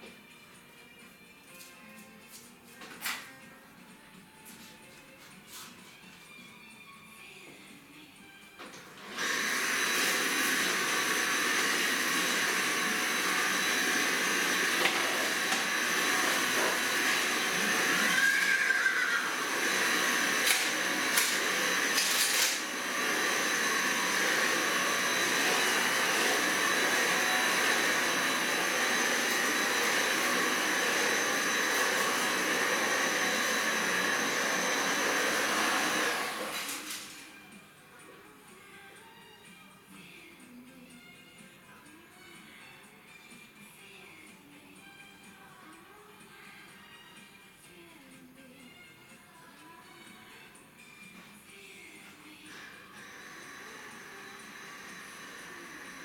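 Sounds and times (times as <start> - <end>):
stick vacuum cleaner whining: 8.6 - 37.4, 52.5 - 56.0.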